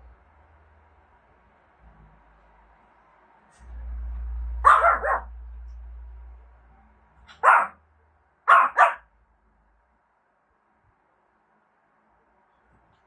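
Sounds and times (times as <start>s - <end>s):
low rumble: 0.0s - 8.4s
dog barking: 4.6s - 5.3s, 7.3s - 7.8s, 8.4s - 9.1s.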